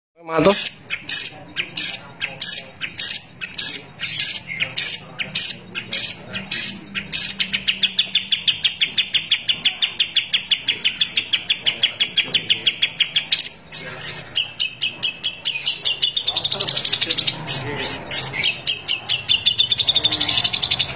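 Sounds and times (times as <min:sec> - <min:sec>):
bird fast chatter: 0:00.2 - 0:20.9
bird harsh notes: 0:00.2 - 0:20.9.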